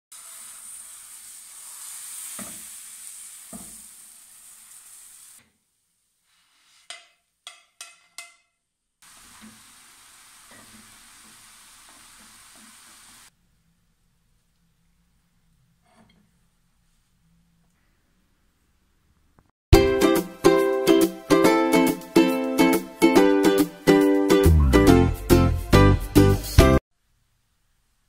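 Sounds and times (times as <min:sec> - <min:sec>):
batter sizzling in frying pan: 0:00.1 - 0:05.4, 0:09.0 - 0:13.3.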